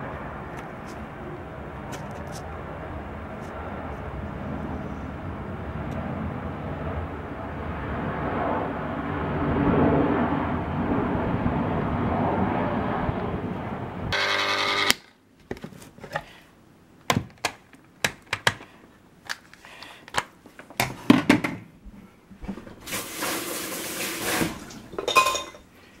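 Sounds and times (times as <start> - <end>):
jet engine noise: 0.0 - 14.2
plastic clicks and knocks: 17.0 - 18.7.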